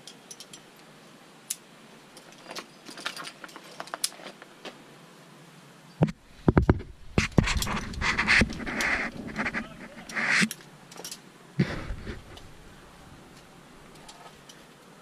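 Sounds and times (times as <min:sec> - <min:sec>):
climbing gear clinking: 0:00.0 - 0:00.7, 0:01.5 - 0:04.4, 0:10.0 - 0:11.3, 0:13.3 - 0:14.9
short rasping noises: 0:06.8 - 0:10.6, 0:11.6 - 0:12.6.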